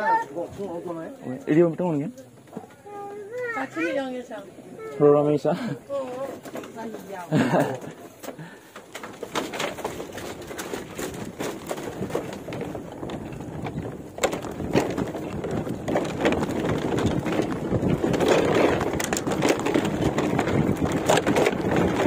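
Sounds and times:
bamboo slats clattering under bicycle: 6.0s - 22.0s.

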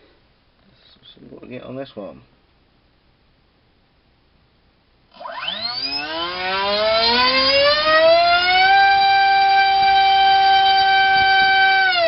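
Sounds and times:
electric motor propeller whine: 5.1s - 12.0s.

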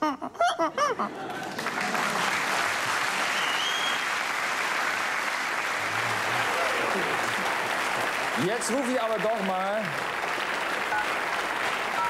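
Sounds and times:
audience applauding: 1.1s - 12.0s.

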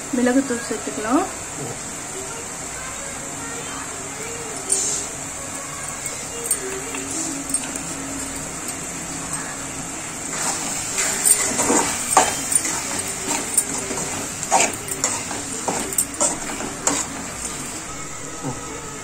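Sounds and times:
metal ladle stirring in pan: 10.2s - 17.9s.

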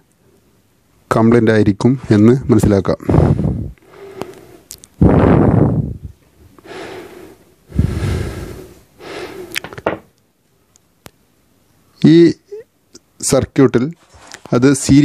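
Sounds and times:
man breathing: 3.0s - 9.8s.

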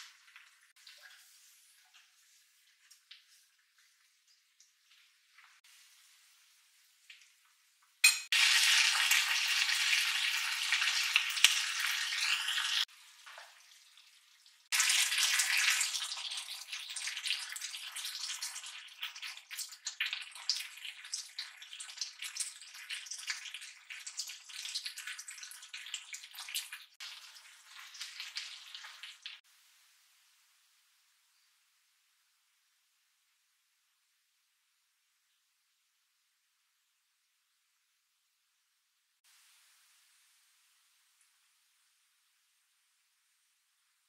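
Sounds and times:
food sizzling in frying pan: 0.0s - 30.4s.

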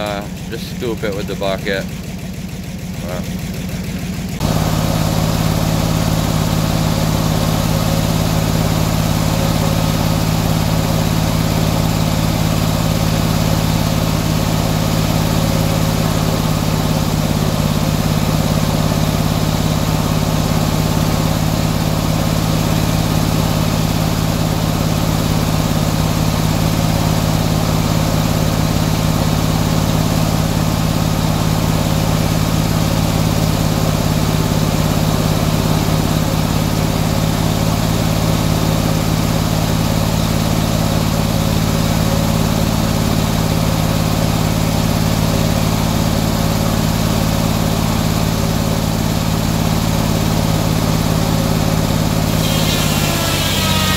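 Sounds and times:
sawmill engine running: 0.0s - 53.9s.

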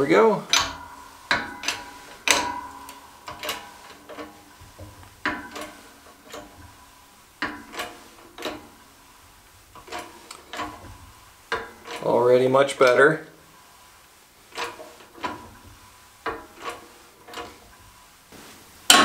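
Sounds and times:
press clicking and knocking: 0.0s - 9.0s, 9.7s - 12.1s, 14.5s - 17.9s.

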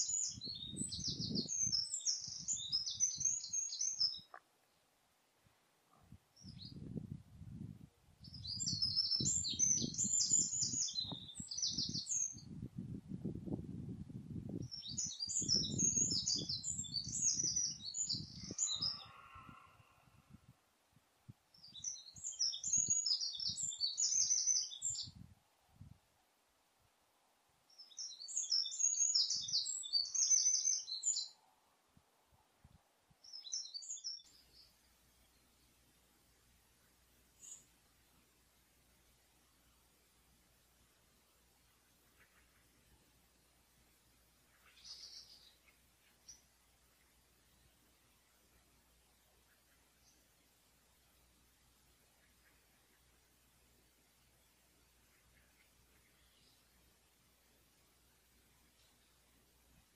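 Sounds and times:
songbird singing: 0.0s - 4.9s, 5.9s - 13.6s, 14.2s - 20.6s, 21.5s - 25.3s, 27.6s - 32.5s, 33.1s - 38.0s, 41.4s - 59.9s
low rustling noise: 34.3s - 59.9s.

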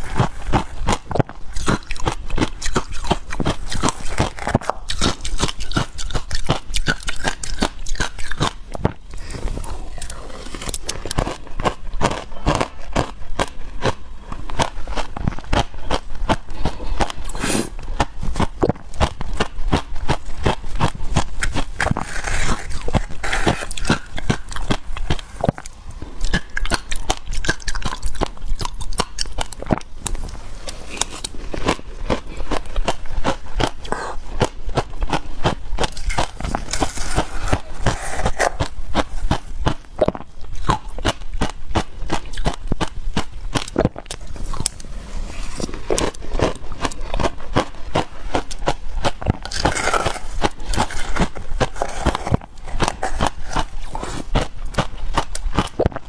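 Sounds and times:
chewing crunchy ice: 0.0s - 56.0s
wooden spoon scraping icy slush: 9.2s - 11.0s, 21.8s - 24.2s, 36.0s - 38.7s, 49.5s - 54.3s.

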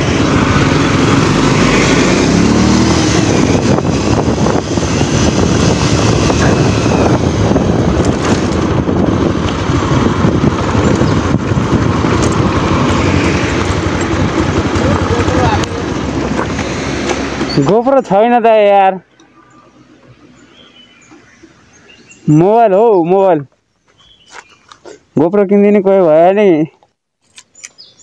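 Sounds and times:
motorcycle engine running: 0.0s - 17.6s
riding wind noise: 0.0s - 26.3s.

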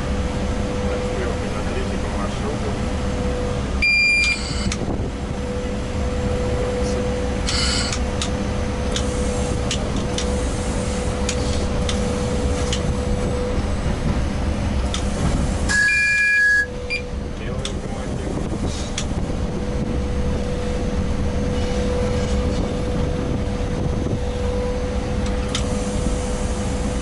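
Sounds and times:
locomotive cab rumble and hum: 0.0s - 27.0s
short electronic beep: 3.8s - 4.7s, 15.7s - 17.1s.

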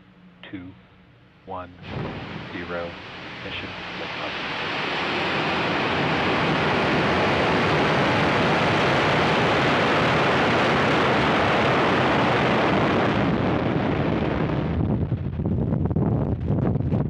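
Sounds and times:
rocket engines roaring: 0.0s - 17.0s.

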